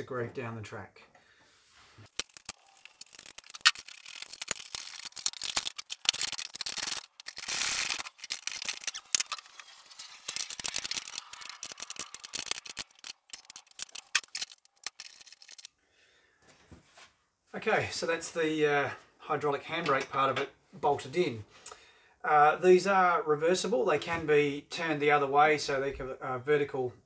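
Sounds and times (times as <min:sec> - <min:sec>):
metal tools clicking and rattling: 0:02.2 - 0:15.7.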